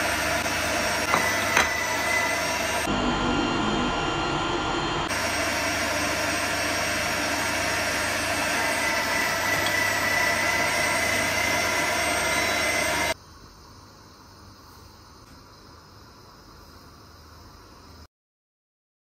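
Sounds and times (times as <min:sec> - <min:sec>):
electric meat grinder humming: 0:00.0 - 0:13.2.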